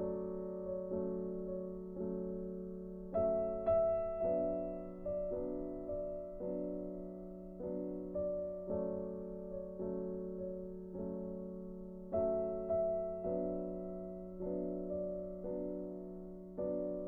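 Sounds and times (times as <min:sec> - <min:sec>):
slow gentle piano notes: 0:00.0 - 0:17.0.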